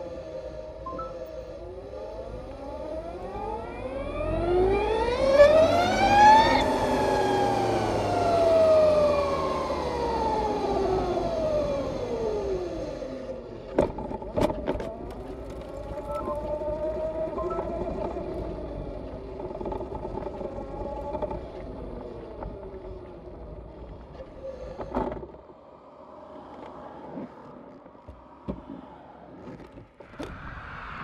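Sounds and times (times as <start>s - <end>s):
electric motorcycle motor whine: 0.0s - 13.7s, 14.9s - 24.9s.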